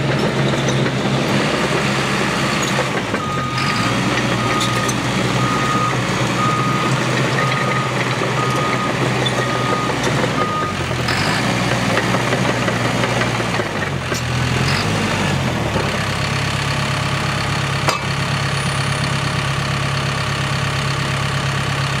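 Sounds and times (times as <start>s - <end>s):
diesel engine idling: 0.0s - 22.0s
backup alarm beep: 3.2s - 3.7s, 4.4s - 10.8s.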